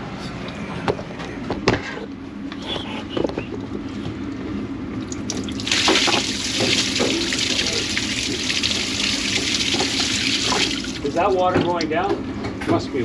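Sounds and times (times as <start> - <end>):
tap water running into sink: 5.1 - 11.7.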